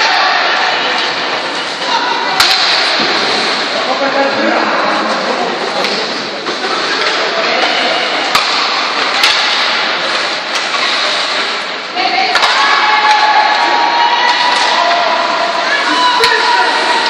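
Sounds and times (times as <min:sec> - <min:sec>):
people shouting: 0:00.0 - 0:03.0, 0:12.0 - 0:17.0.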